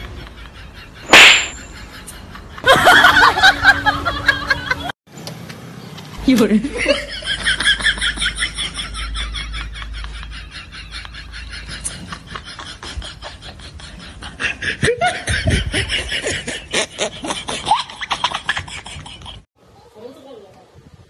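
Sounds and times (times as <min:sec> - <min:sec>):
rapid laughter: 0:06.9 - 0:19.5.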